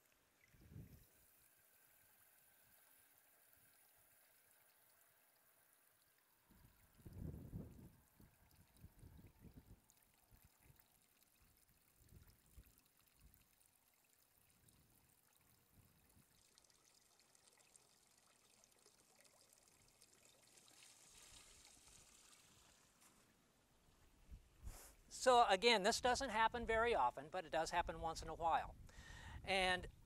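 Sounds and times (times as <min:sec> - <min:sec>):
water pouring from pipe: 0:00.0 - 0:23.4.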